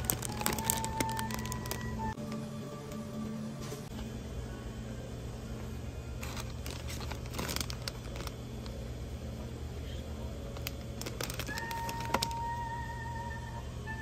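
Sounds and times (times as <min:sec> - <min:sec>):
plastic snack bag crinkling: 0:00.0 - 0:02.4, 0:06.2 - 0:08.8, 0:10.5 - 0:12.5
steady low hum: 0:00.0 - 0:14.0.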